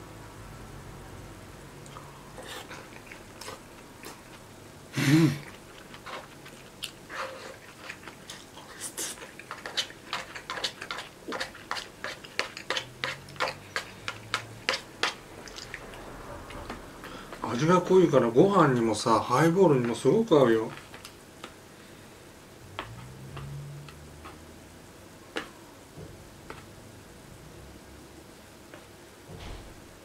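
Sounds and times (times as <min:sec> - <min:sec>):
person chewing food: 0:01.8 - 0:17.4, 0:22.7 - 0:24.6.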